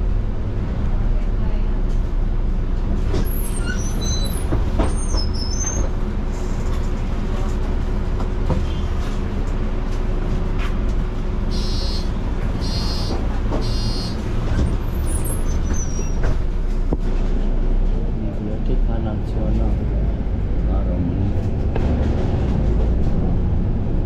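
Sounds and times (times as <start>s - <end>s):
bus engine drone: 0.0s - 24.0s
short electronic beeps: 11.5s - 14.2s.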